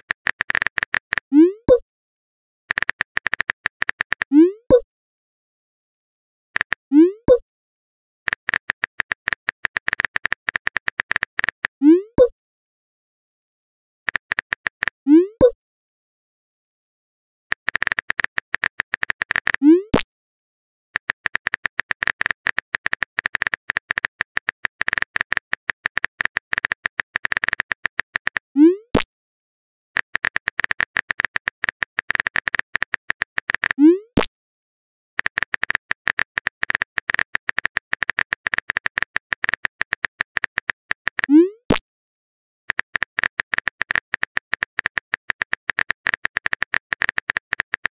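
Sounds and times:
phone keyboard typing clicks: 0.0s - 1.8s, 2.7s - 4.8s, 6.6s - 7.4s, 8.3s - 12.3s, 14.1s - 15.6s, 17.5s - 19.6s, 21.0s - 29.1s, 30.0s - 34.2s, 35.2s - 41.8s, 42.7s - 47.9s.

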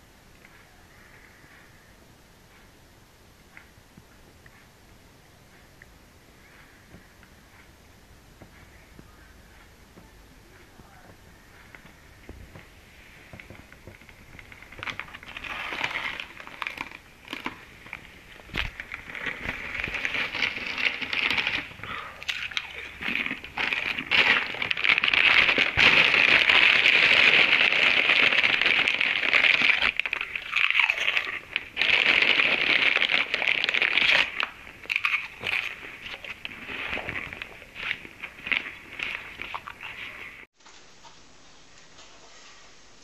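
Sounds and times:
person crunching a snack: 13.4s - 40.4s.

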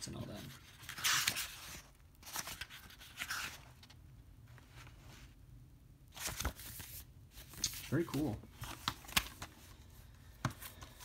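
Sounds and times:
paper pages rustling: 0.4s - 4.0s, 6.1s - 11.0s.

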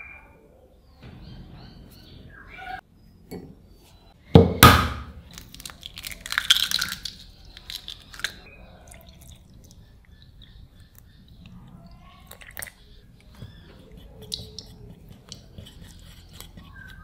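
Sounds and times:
egg knocking on glass bowl: 4.4s - 5.1s
eggshell crackling: 4.4s - 17.0s.

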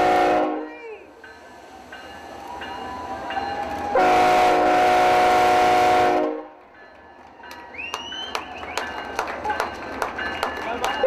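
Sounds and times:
locomotive air horn: 0.0s - 0.8s, 3.9s - 6.6s.

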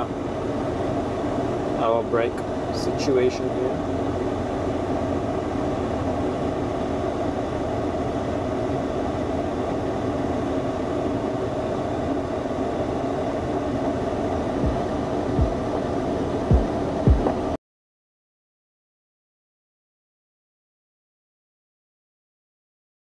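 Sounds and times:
truck engine and road noise: 0.0s - 17.6s
low knock: 16.5s - 17.4s.

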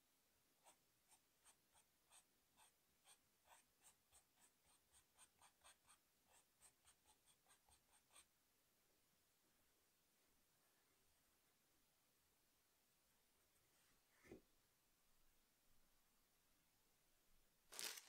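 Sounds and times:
pencil scratching on paper: 0.6s - 8.3s.

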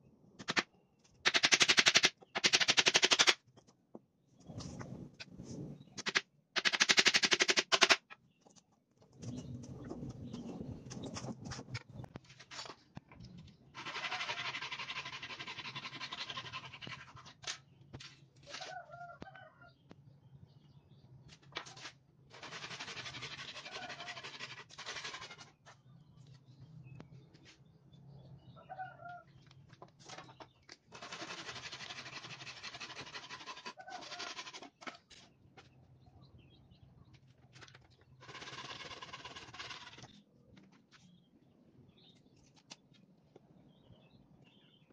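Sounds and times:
handsaw cutting wood: 13.8s - 16.9s, 22.4s - 25.4s, 31.0s - 34.7s.

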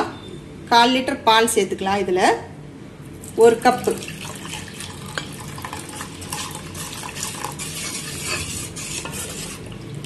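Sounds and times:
liquid swishing in a pan: 4.4s - 10.0s
spoon clinking and scraping a pan: 6.3s - 9.6s.

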